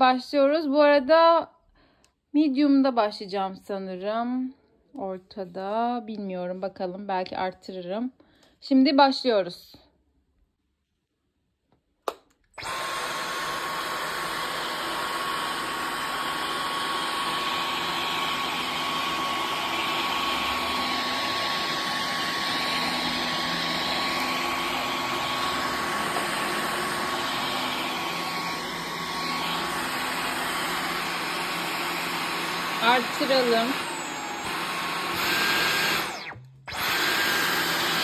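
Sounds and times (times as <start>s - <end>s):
vacuum cleaner running: 12.6s - 38.0s.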